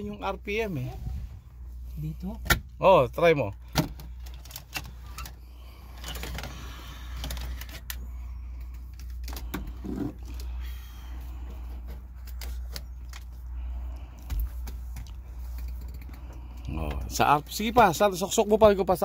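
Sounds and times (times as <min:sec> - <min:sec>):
steady low hum: 0:00.0 - 0:19.0
small clicks and rustling: 0:14.2 - 0:16.7.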